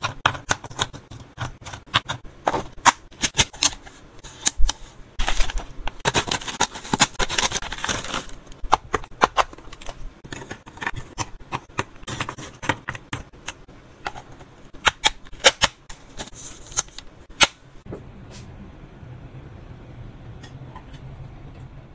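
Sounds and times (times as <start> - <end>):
plastic pouch crinkling: 4.5 - 8.6.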